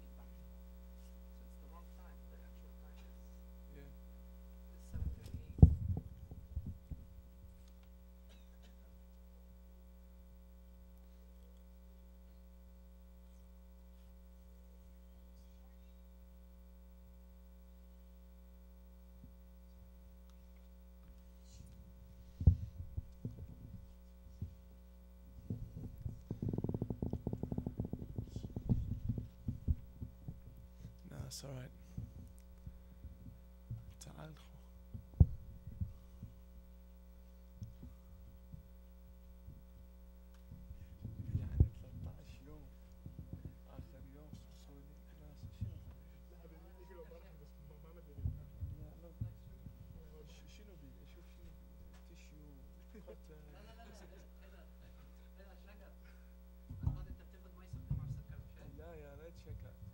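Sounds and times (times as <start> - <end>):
electrical mains hum: 0.0 - 59.9
microphone handling thumps: 4.9 - 7.2, 22.0 - 24.6, 25.3 - 31.0, 31.7 - 34.1, 34.9 - 36.5, 37.6 - 38.8, 39.4 - 44.6, 45.3 - 46.1, 48.1 - 50.4, 56.6 - 59.9.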